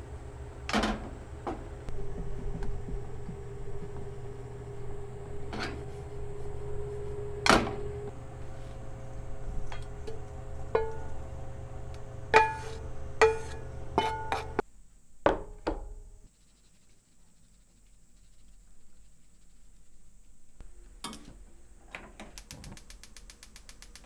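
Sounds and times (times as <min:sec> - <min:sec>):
steady low hum: 0:00.0 - 0:24.0
metal bowl ringing: 0:09.6 - 0:11.5
spatula knocking on metal pan: 0:10.8 - 0:11.1.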